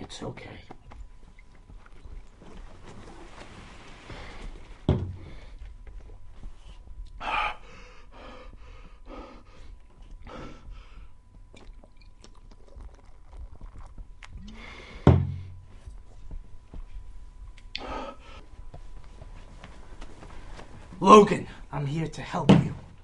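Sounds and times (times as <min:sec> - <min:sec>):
man gasping and breathing hard: 0:07.2 - 0:11.2, 0:17.8 - 0:18.4
swallowing: 0:11.5 - 0:15.0
breathy exhale: 0:14.4 - 0:15.6, 0:17.8 - 0:18.4
sharp thump: 0:15.0 - 0:15.5.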